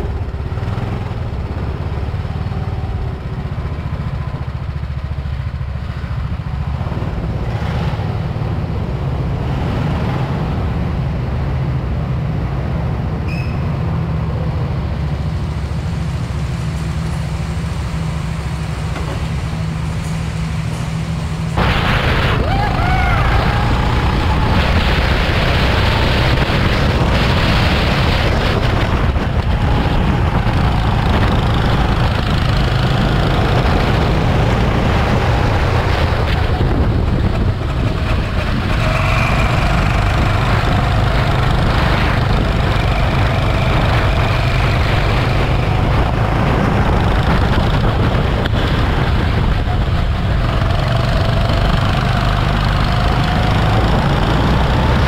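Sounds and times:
go-kart engine running: 0:13.8 - 0:55.0.

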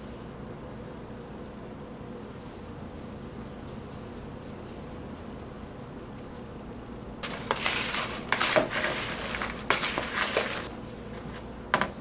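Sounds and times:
popcorn rustling in plastic bowl: 0:07.2 - 0:10.7.

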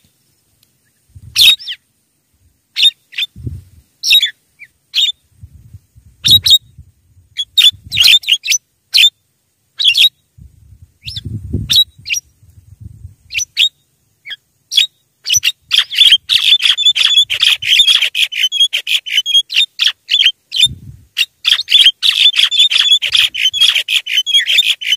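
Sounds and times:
myna bird calling harshly: 0:00.8 - 0:01.9, 0:02.7 - 0:03.4, 0:04.0 - 0:05.2, 0:06.2 - 0:06.6, 0:07.3 - 0:10.3, 0:13.3 - 0:24.9.

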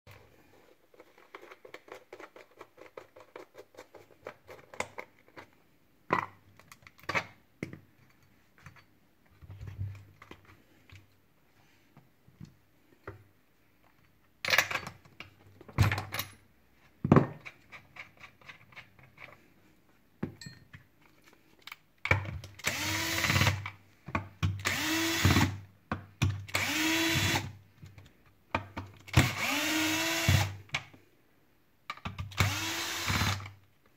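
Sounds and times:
tools and plastic parts clicking: 0:00.9 - 0:11.1, 0:17.3 - 0:19.4, 0:31.9 - 0:33.7
cordless drill whining: 0:22.6 - 0:23.6, 0:24.6 - 0:25.6, 0:26.5 - 0:27.5, 0:29.1 - 0:30.6, 0:32.4 - 0:33.5.

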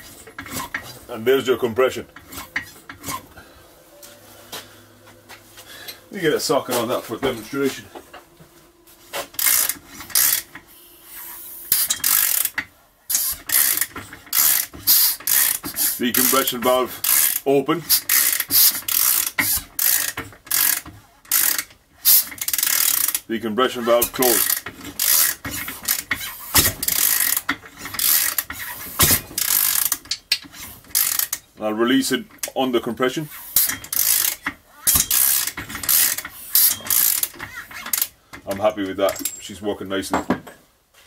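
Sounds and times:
socket ratchet clicking: 0:09.4 - 0:10.6, 0:11.7 - 0:23.3, 0:24.3 - 0:31.4, 0:33.6 - 0:38.2.

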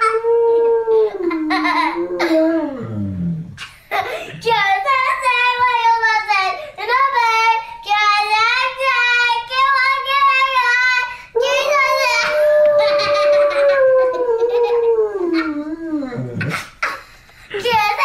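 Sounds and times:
child howling: 0:00.0 - 0:02.9, 0:11.4 - 0:16.4
dog howling: 0:00.0 - 0:03.4, 0:11.9 - 0:16.4.

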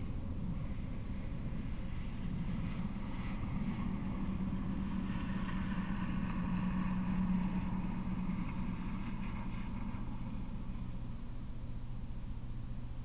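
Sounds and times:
low engine-like hum: 0:00.0 - 0:13.0.

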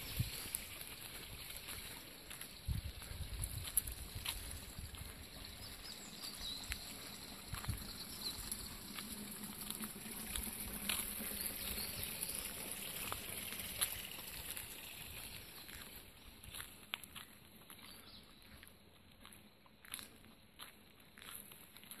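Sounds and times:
faint high chirps: 0:00.0 - 0:09.8.

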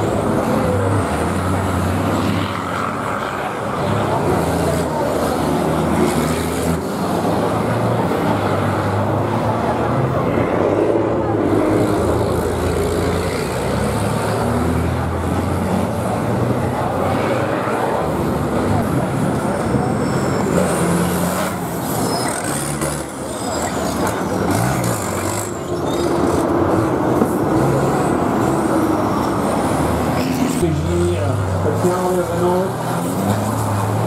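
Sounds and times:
truck engines accelerating: 0:00.0 - 0:34.0.

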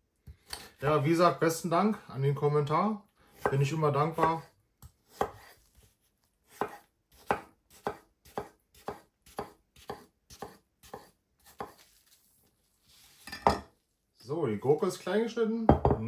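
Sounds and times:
knife cutting cucumber on board: 0:03.3 - 0:11.9.

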